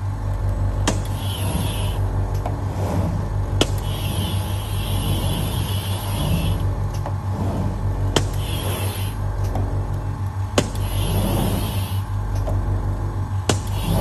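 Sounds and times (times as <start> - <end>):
machine hum: 0.0 - 14.0
cutting wheel scoring glass: 0.8 - 2.0, 3.6 - 9.2, 10.6 - 12.0, 13.5 - 14.0.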